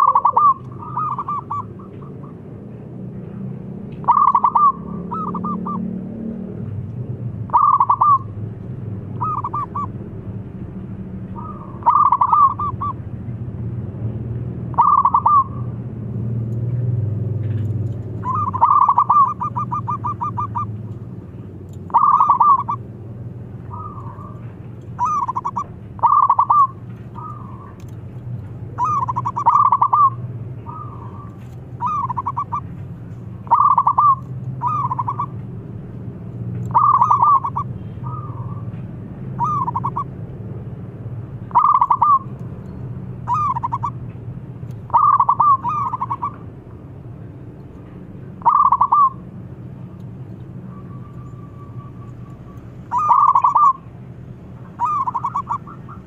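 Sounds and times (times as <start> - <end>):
dove cooing: 0.0 - 2.4, 4.0 - 5.8, 7.5 - 8.3, 9.2 - 9.9, 11.4 - 13.0, 14.7 - 15.7, 18.2 - 20.8, 21.9 - 22.9, 23.6 - 27.9, 28.7 - 32.8, 33.4 - 35.4, 36.7 - 38.7, 39.4 - 40.1, 41.5 - 42.3, 43.2 - 44.0, 44.9 - 46.4, 48.4 - 49.2, 50.7 - 53.9, 54.7 - 56.0.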